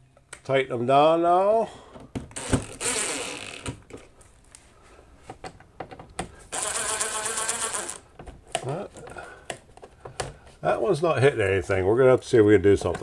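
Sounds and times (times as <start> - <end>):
cordless drill driving screws: 6.5 - 8.0.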